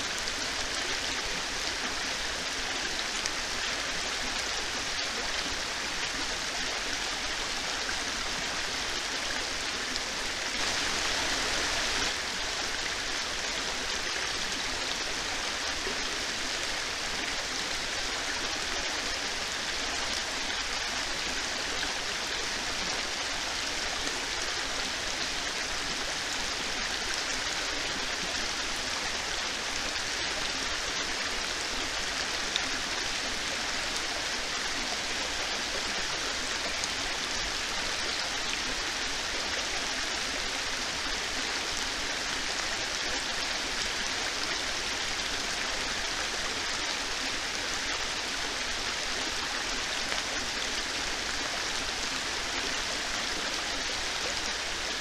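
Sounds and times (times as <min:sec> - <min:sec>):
heavy rain falling: 0:07.2 - 0:14.1.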